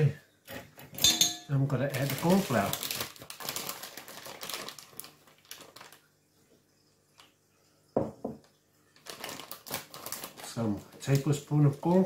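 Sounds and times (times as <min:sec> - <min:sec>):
packet rustling: 0:01.7 - 0:06.1, 0:09.0 - 0:12.0.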